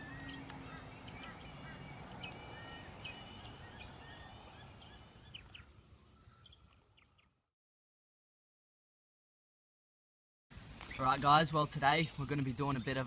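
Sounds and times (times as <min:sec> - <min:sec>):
birds chirping: 0:00.0 - 0:07.5, 0:10.7 - 0:13.0.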